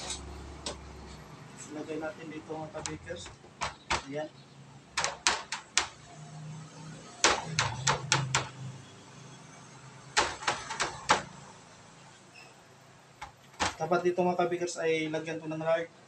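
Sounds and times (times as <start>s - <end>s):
taps on metal baking tray: 2.8s - 4.2s, 7.2s - 8.5s.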